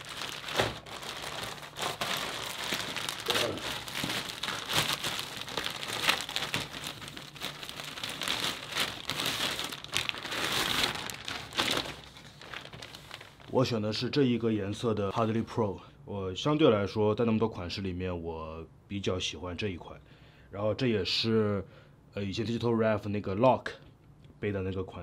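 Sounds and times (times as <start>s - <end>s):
plastic mailer bag crinkling: 0.0s - 13.7s.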